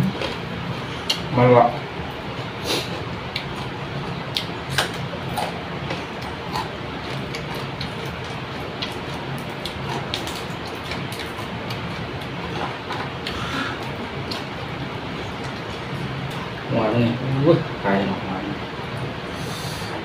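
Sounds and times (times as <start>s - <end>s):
steady low hum: 0.0s - 20.0s
chewing: 4.3s - 14.6s.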